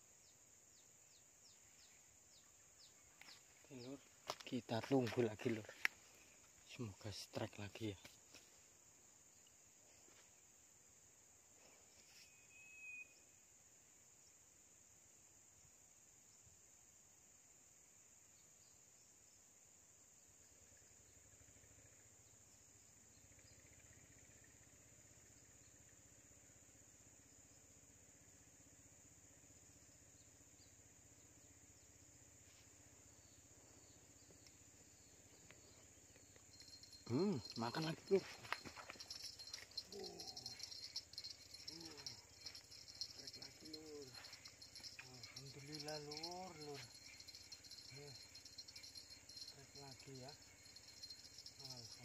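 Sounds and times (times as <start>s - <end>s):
insects chirring: 0.0s - 52.0s
thin whistle: 12.2s - 13.4s
high-pitched insect drone: 33.2s - 52.0s.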